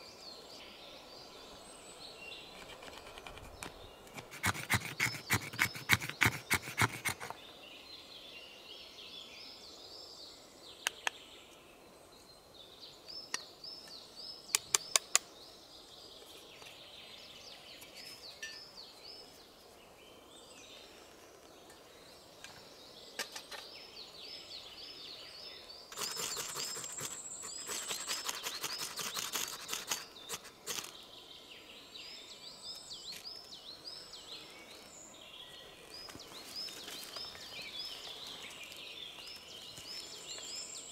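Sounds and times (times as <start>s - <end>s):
small birds singing: 0.0s - 40.9s
knife scraping stick: 2.5s - 7.3s, 25.9s - 30.9s.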